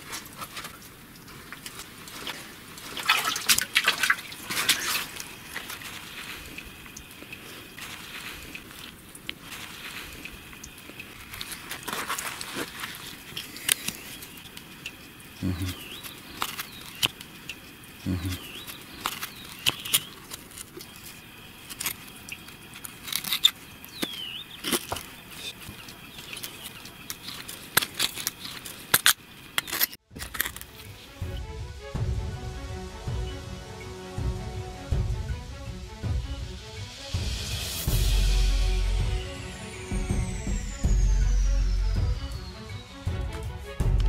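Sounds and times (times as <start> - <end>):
leather and metal clicks and scrapes: 11.0 - 14.1, 22.8 - 31.0.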